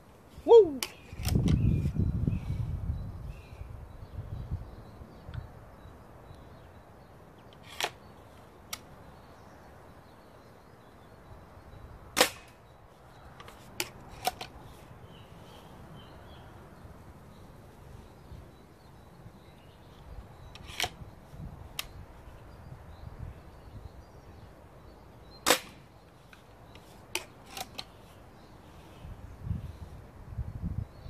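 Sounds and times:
air rifle shots: 12.1 - 12.6, 25.4 - 25.9.

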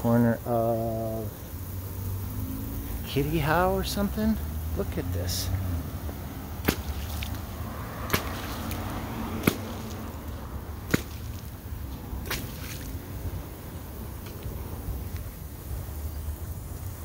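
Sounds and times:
sprinkler spray hissing: 0.0 - 17.0
water jet splashing hits: 6.0 - 14.5.

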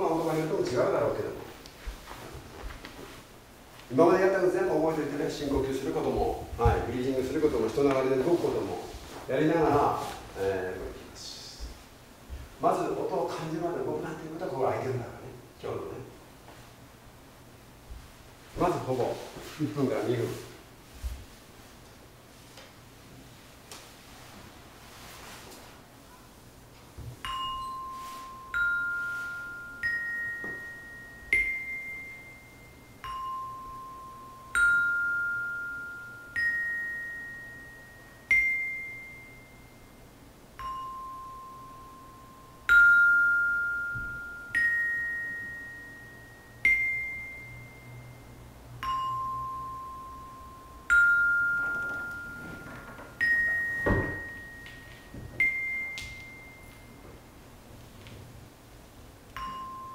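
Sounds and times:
metallophone notes ringing: 27.2 - 57.4, 59.2 - 59.9
dull thump: 53.8 - 54.4.

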